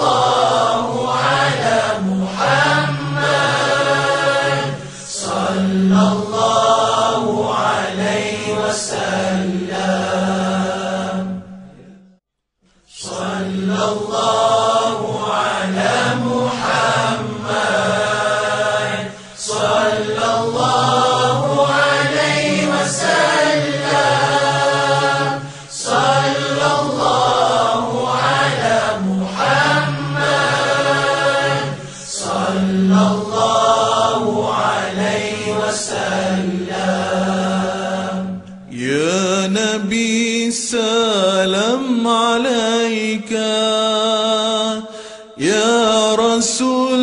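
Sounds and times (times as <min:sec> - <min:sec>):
voices chanting: 0:00.0 - 0:11.9, 0:12.9 - 0:38.9
single voice singing with vibrato: 0:12.9 - 0:47.0.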